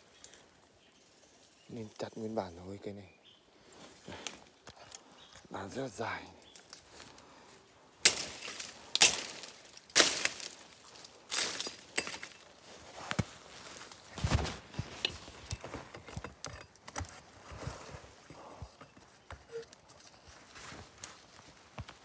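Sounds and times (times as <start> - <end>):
blade chopping wood: 8.0 - 10.6.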